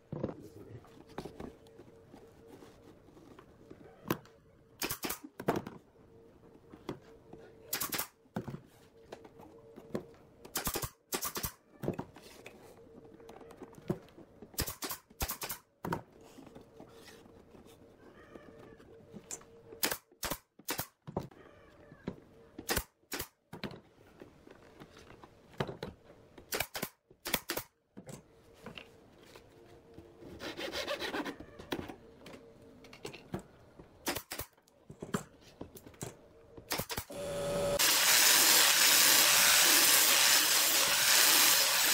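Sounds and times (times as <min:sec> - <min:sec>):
wood rubbing and scraping: 0:00.1 - 0:04.1.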